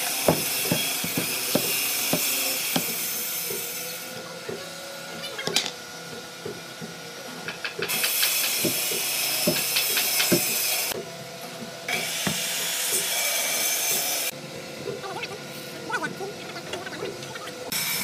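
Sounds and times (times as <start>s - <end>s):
heavy wooden slab knocking: 0.3s - 3.0s.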